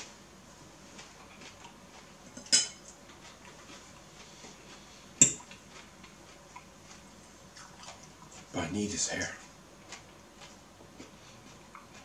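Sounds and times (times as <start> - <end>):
fork clinking against ceramic bowl: 2.4 - 2.8.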